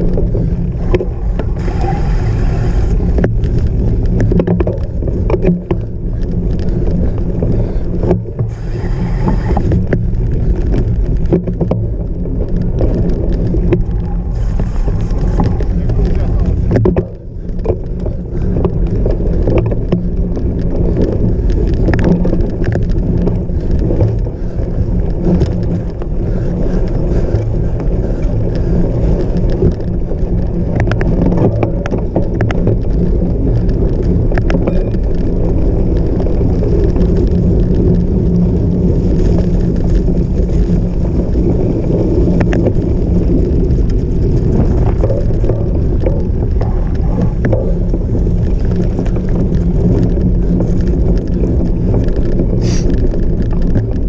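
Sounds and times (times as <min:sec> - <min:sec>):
bike tyres rumbling on rough ground: 0:00.0 - 0:54.0.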